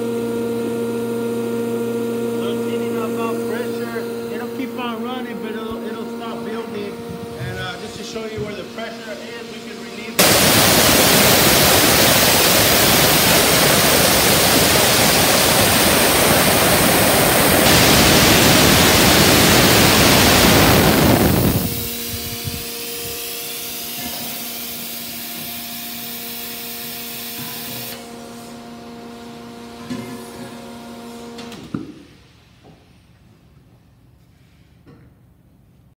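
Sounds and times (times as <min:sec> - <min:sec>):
electric compressor humming: 0:00.0 - 0:29.8
compressed air hissing from valve: 0:10.2 - 0:22.4.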